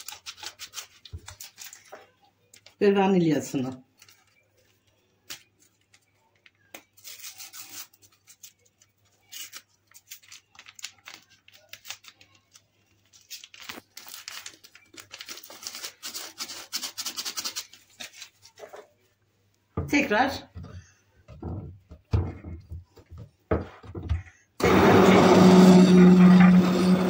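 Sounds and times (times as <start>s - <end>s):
packet rustling and crackling: 0.0s - 2.8s, 3.9s - 19.0s.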